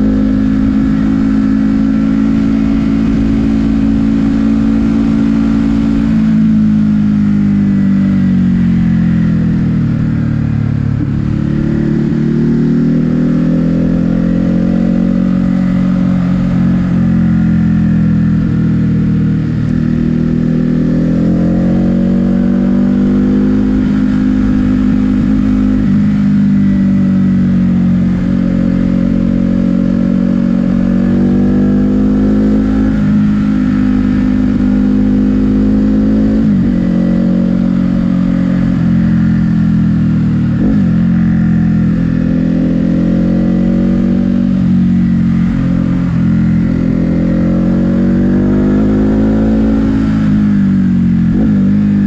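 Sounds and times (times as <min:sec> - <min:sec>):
motorcycle engine revving: 0:00.0 - 0:52.0.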